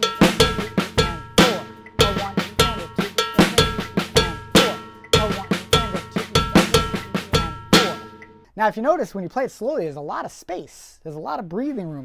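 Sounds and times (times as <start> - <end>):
bass drum: 0.0 - 8.3
cowbell: 0.0 - 8.4
snare drum strokes: 0.0 - 8.4.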